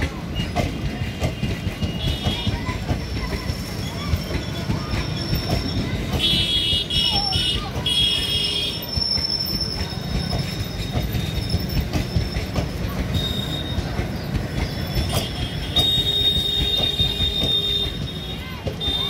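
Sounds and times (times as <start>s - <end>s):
train wheels rumbling: 0.0s - 19.0s
wheels knocking over rail joints: 0.0s - 19.0s
high-pitched wheel squeal: 8.1s - 19.0s.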